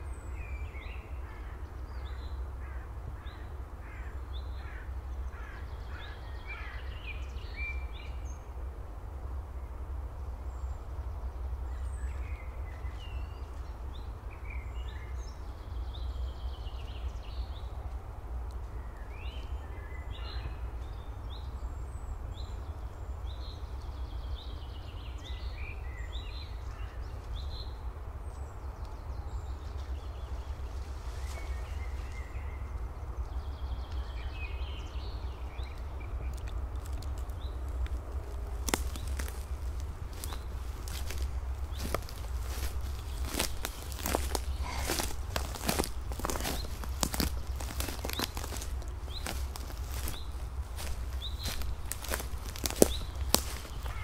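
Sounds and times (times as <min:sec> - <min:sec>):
steady low rumble: 0:27.3 - 0:54.0
birds calling and chirping: 0:28.3 - 0:54.0.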